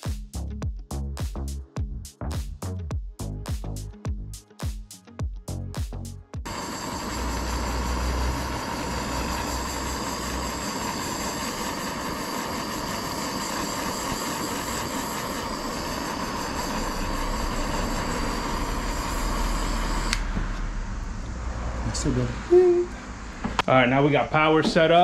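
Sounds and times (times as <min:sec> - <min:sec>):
torch flame hissing: 0:06.5 - 0:25.0.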